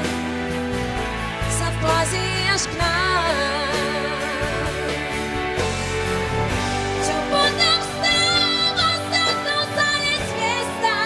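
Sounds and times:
bass line: 0:00.0 - 0:11.0
held chords: 0:03.8 - 0:10.2.

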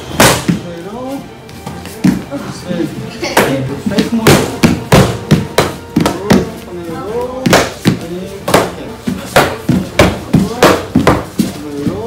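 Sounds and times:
kicks slapping paddle targets: 0:00.1 - 0:00.6, 0:03.4 - 0:06.5, 0:07.4 - 0:11.5.

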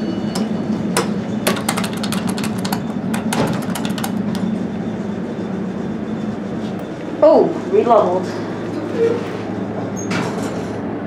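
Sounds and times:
elevator car humming: 0:00.0 - 0:11.0
sharp clicks and rattles: 0:00.4 - 0:04.6.

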